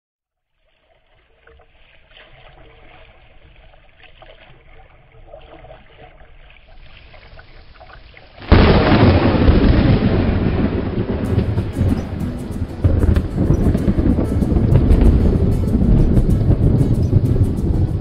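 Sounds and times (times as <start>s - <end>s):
water lapping against a kayak: 0.5s - 11.8s
rain: 6.9s - 18.0s
thunder rumble: 8.5s - 18.0s.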